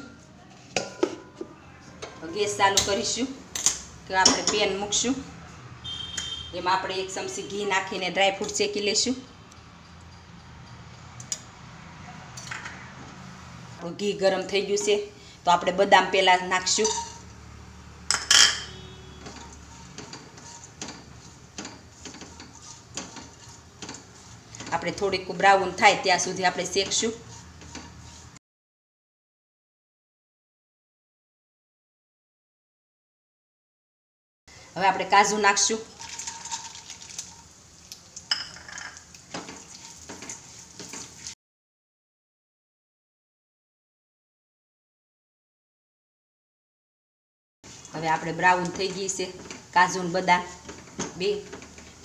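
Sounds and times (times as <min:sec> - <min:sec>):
spatula scraping and tapping: 0:16.7 - 0:17.3, 0:18.1 - 0:28.4, 0:38.3 - 0:41.4, 0:48.6 - 0:49.7, 0:50.4 - 0:52.0
nuts sizzling in hot fat: 0:35.8 - 0:41.4.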